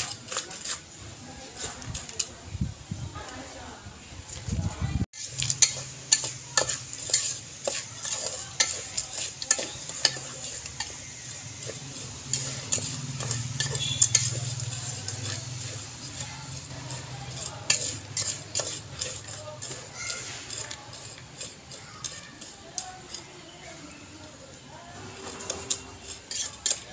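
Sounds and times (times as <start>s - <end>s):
metal spoon scraping pot: 0.0s - 2.4s, 5.2s - 24.0s, 24.8s - 26.9s
kernels rattling: 5.2s - 23.7s, 24.8s - 26.9s.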